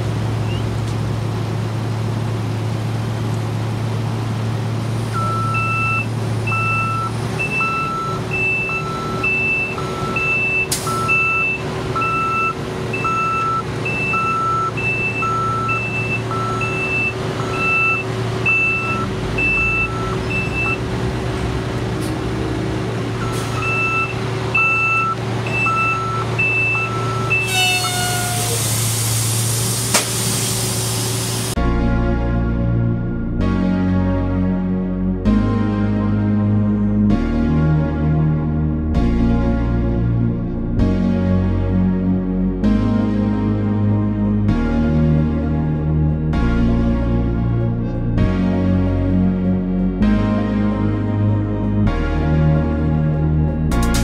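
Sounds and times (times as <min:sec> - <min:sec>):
diesel truck engine running: 0:00.0 - 0:54.0
reversing alarm beeping: 0:05.2 - 0:20.9, 0:23.2 - 0:28.7
loud air hiss: 0:27.5 - 0:31.6.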